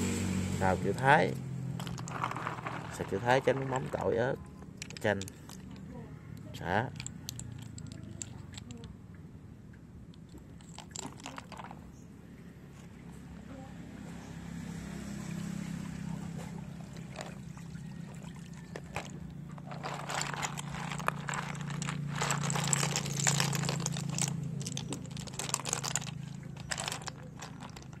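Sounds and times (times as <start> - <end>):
snail shells clattering in water: 1.8 - 5.9, 6.9 - 8.9, 10.2 - 12.0, 18.1 - 28.0.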